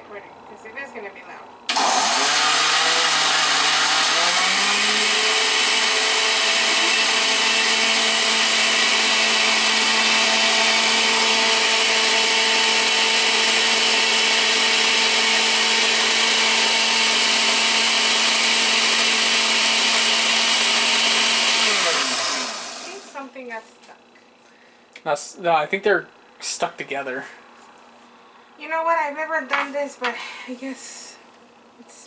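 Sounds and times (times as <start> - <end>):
blender motor running: 1.7 - 23.3.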